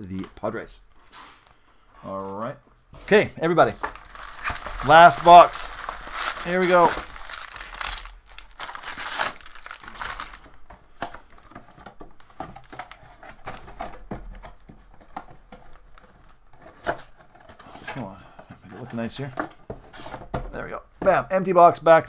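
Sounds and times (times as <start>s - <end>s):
packs rustling and clicking: 3.0s - 18.0s
foil packs crinkling: 3.8s - 13.8s.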